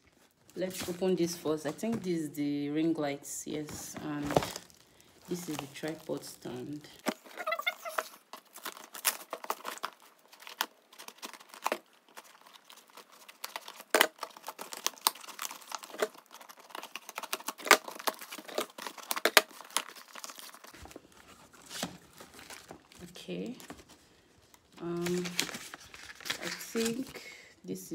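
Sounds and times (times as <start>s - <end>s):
packaging being torn open: 7.0s - 23.0s, 25.0s - 27.2s.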